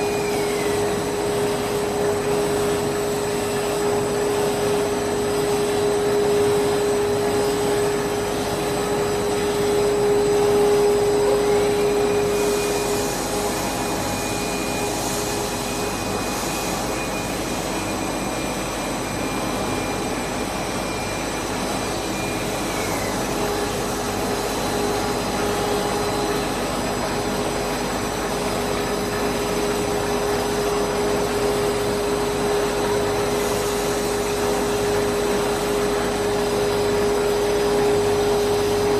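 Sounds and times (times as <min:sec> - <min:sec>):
machine motors whirring: 0:00.0 - 0:18.2
high whine: 0:00.0 - 0:38.9.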